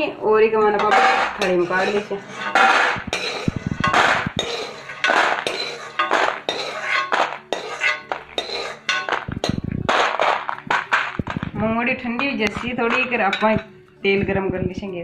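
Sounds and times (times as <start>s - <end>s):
metal spoon scraping a pan: 0.6s - 13.7s.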